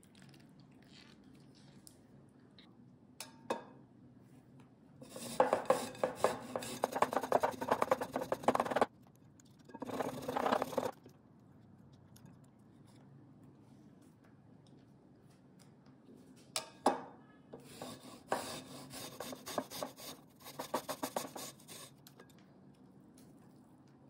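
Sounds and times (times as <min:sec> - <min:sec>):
ginger scraping on metal grater: 0:05.0 - 0:08.9, 0:09.8 - 0:11.0, 0:17.7 - 0:22.0.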